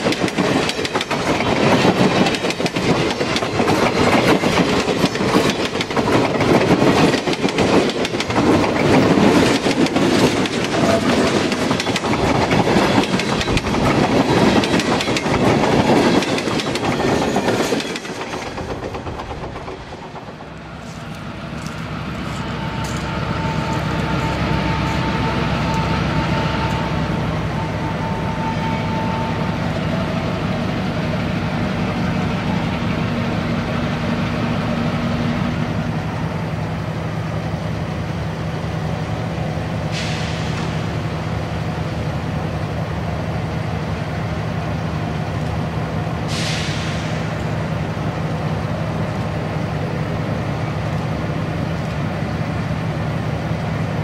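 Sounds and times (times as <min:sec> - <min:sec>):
diesel locomotive engines droning: 0:00.0 - 0:54.0
short hisses: 0:46.3 - 0:47.2.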